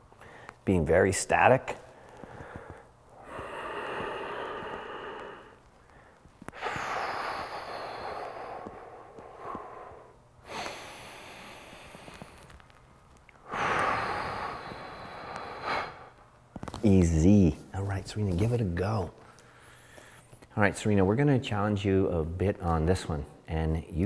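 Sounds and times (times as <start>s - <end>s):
man breathing forcefully: 1.9s - 12.5s, 13.4s - 16.2s.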